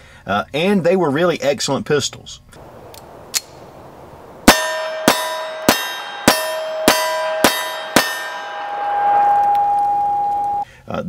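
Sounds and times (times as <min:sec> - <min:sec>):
ringing metallic clang: 0:04.4 - 0:10.6.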